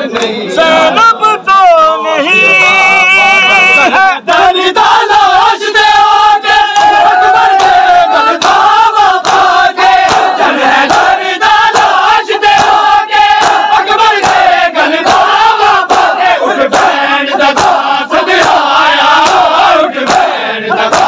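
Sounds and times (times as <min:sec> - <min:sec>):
crowd of men chanting: 0:00.0 - 0:21.0
hands slapping chests: 0:06.8 - 0:21.0.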